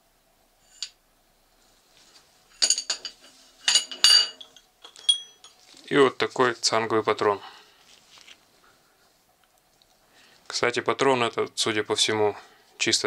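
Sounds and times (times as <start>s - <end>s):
metal bars clinking: 2.6s - 5.6s.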